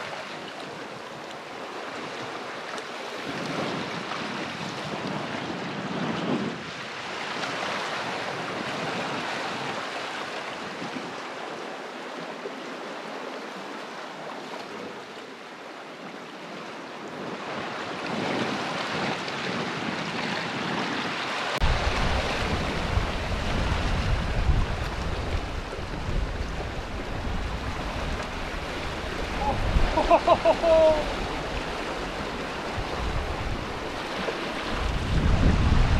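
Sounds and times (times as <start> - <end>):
wind rumble on microphone: 0.0 - 11.5, 17.0 - 35.9
sea swell washing around rocks: 17.4 - 35.9.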